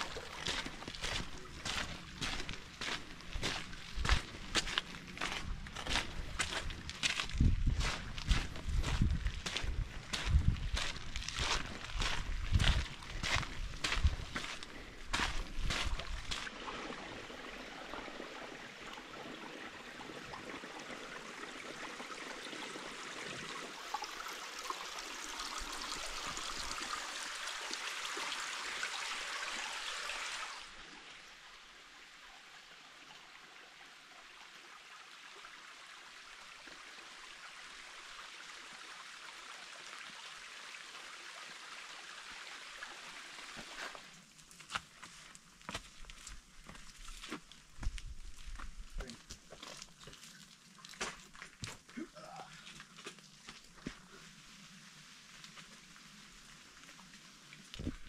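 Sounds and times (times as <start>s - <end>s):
stream water rushing: 0.0s - 7.1s, 8.9s - 44.3s.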